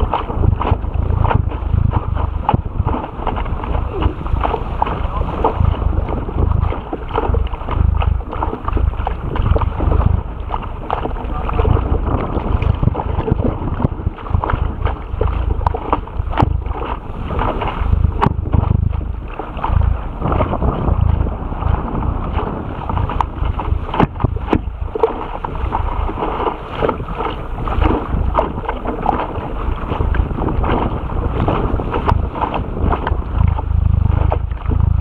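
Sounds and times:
water splashing against boat bow: 0:00.0 - 0:35.0
wind buffeting microphone: 0:00.0 - 0:35.0.

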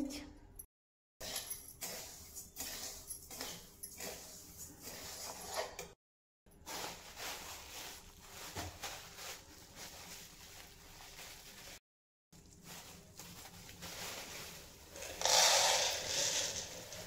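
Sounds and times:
seeds scraping in a pan: 0:01.2 - 0:05.6, 0:13.6 - 0:17.0.

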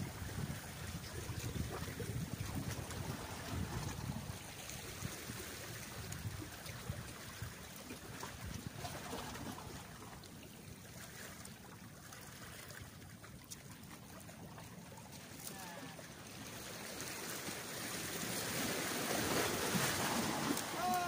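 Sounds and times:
wind rumbling on the microphone: 0:00.0 - 0:10.5
water lapping against rocks: 0:00.0 - 0:21.0.

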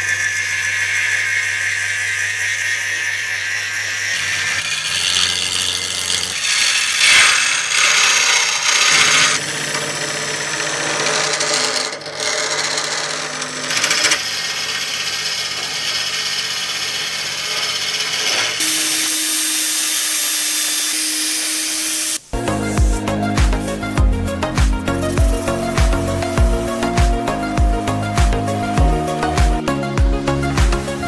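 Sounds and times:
lathe motor hum: 0:00.0 - 0:30.3
tool cutting wood on lathe: 0:00.0 - 0:31.0.

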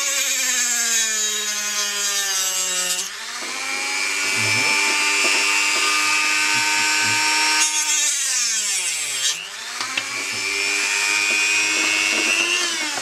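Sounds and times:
cutting disc grinding on metal: 0:02.0 - 0:13.0
rotary tool whining: 0:02.9 - 0:13.0.

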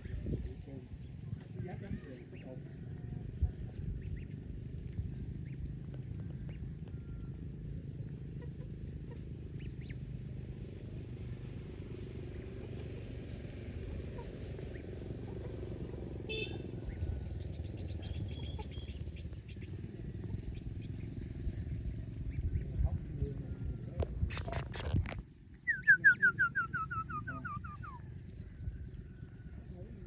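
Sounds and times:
goslings peeping: 0:03.7 - 0:05.6, 0:08.4 - 0:10.0, 0:13.9 - 0:15.8, 0:17.7 - 0:19.8.

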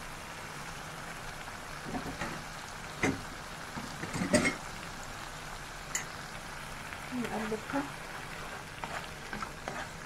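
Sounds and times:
sauce sizzling in a pan: 0:00.0 - 0:10.0.

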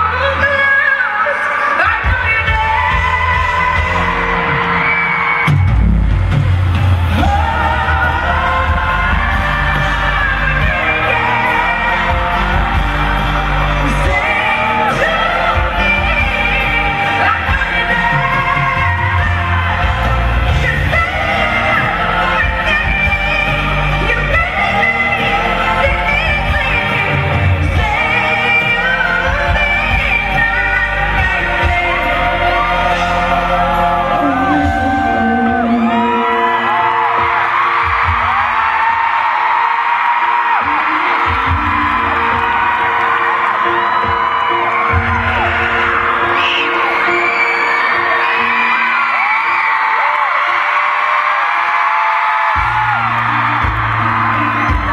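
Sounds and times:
woman singing pop ballad: 0:00.0 - 0:05.2, 0:07.1 - 0:39.4, 0:40.4 - 0:43.0, 0:52.6 - 0:54.9
fans whooping and screaming: 0:00.0 - 0:54.9
piano and band accompaniment: 0:00.0 - 0:54.9.

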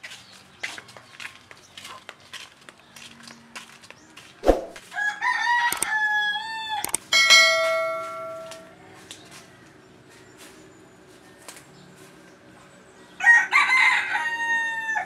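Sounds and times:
mouse-click sound effects: 0:04.4 - 0:04.8
rooster crowing: 0:04.9 - 0:06.9, 0:13.2 - 0:15.0
bright bell chime: 0:07.2 - 0:08.7.

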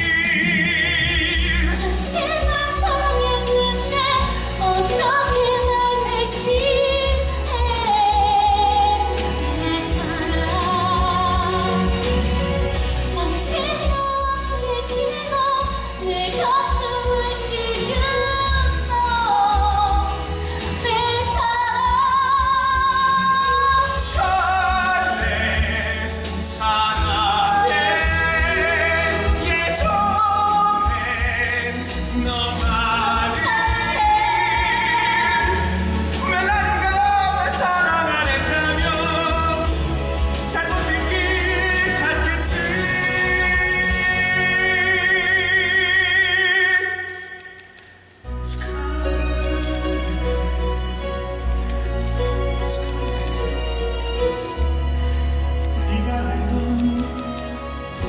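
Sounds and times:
man and woman singing: 0:00.0 - 0:47.2, 0:48.4 - 0:50.8.

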